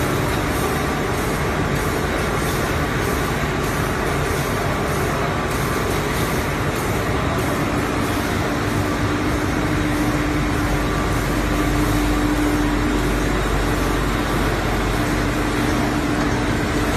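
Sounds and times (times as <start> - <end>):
machine mechanical noise: 0.0 - 16.9
steady hum: 0.0 - 16.9.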